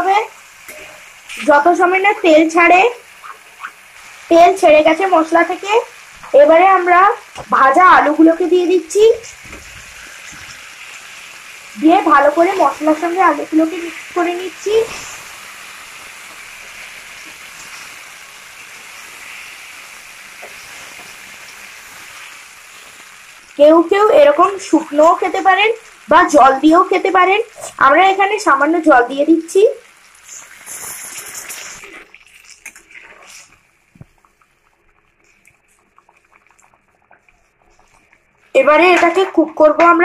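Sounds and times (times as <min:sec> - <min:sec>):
potatoes sizzling in oil: 0:00.0 - 0:40.0
spatula stirring in pan: 0:00.4 - 0:28.2, 0:29.9 - 0:39.4
simmering gravy ticks and pops: 0:30.2 - 0:40.0.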